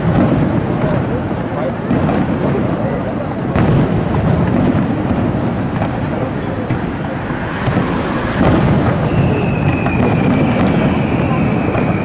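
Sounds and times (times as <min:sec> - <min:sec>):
fireworks booming: 0:00.0 - 0:12.0
sharp cracks: 0:03.3 - 0:12.0
whistling firework shell: 0:05.6 - 0:12.0.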